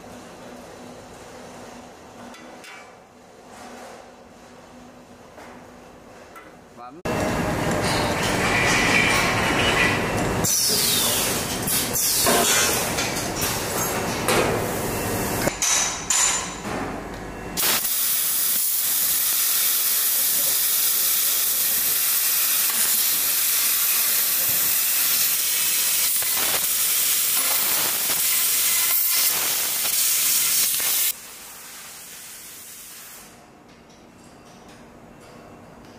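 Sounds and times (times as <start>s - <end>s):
laser cutter gas hiss: 10.5s - 12.4s, 17.6s - 33.4s.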